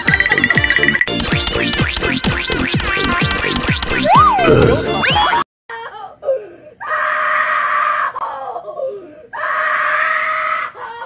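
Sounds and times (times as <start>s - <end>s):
person screaming: 4.0s - 5.3s.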